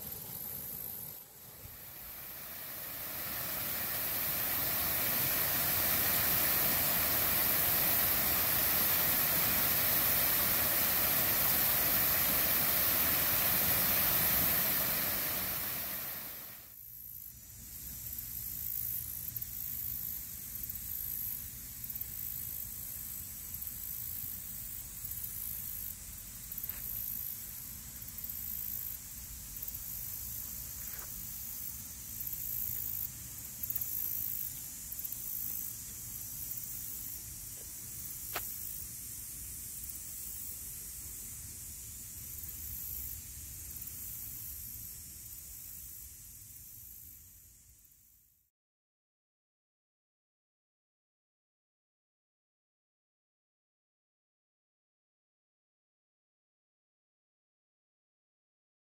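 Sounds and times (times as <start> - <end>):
uneven background hiss: 0.0 - 48.5
waterfall rushing: 1.4 - 16.6.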